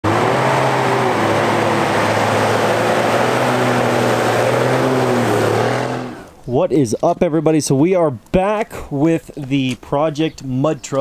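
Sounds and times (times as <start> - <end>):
diesel truck engine under load: 0.0 - 6.5.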